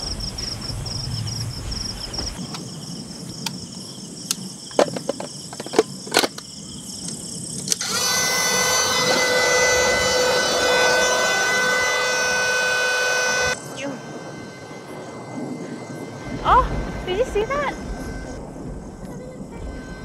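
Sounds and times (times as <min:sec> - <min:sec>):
low rumble: 0:00.0 - 0:03.3, 0:08.0 - 0:20.0
insects chirping: 0:00.0 - 0:20.0
small motor humming: 0:07.8 - 0:18.4.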